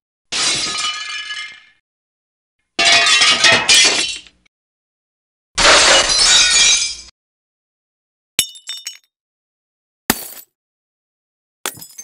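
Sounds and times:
glass shattering: 0.4 - 1.7, 2.8 - 4.2, 5.6 - 7.1, 8.4 - 9.1, 10.1 - 10.4, 11.7 - 12.0.

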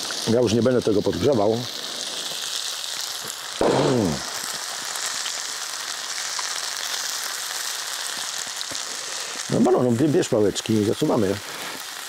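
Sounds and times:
food sizzling in a frying pan: 0.0 - 12.0
man making short voiced sound: 3.6 - 4.3.

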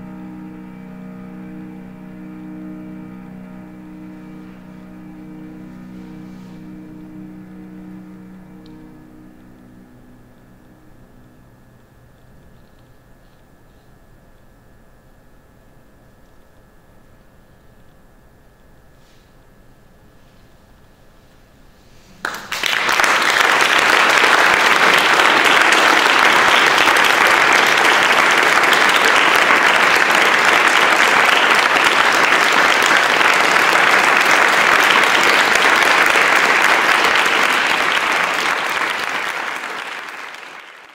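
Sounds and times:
audience clapping: 0.0 - 11.4, 22.2 - 40.9.

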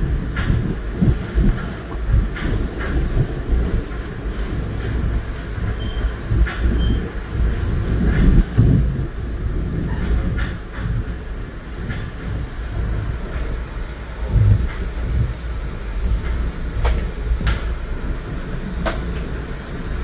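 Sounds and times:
train low rumble: 0.0 - 20.0
wheels clicking on track: 0.0 - 20.0.

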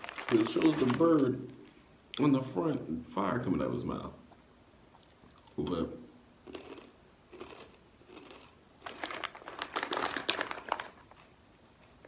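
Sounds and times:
plastic chip bag crinkling: 0.0 - 1.8, 6.5 - 11.4.

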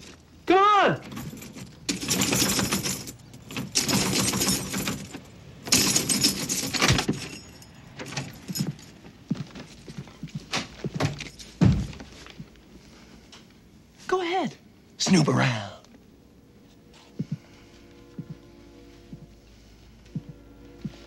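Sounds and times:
keys jangling against door lock: 1.0 - 10.0.

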